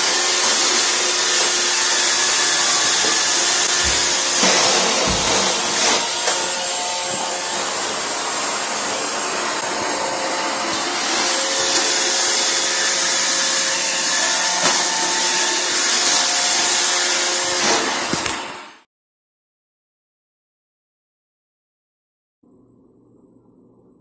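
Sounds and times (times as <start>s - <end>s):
robot vacuum whirring: 0.0s - 18.7s.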